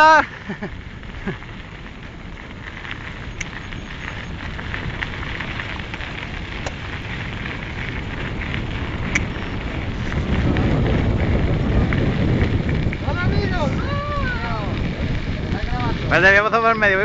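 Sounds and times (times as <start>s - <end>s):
bike tyres crunching on gravel: 0.0s - 17.0s
sharp clicks: 9.1s - 9.3s.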